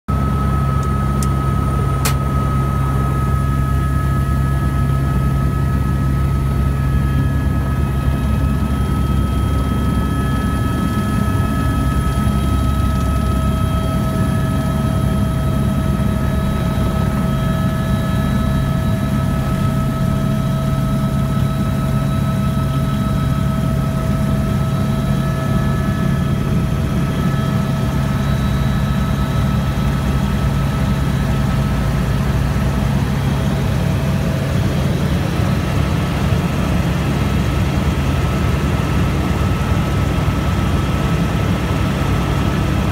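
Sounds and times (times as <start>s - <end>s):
helicopter engine and rotor drone: 0.1s - 42.9s
sharp click: 2.0s - 2.2s.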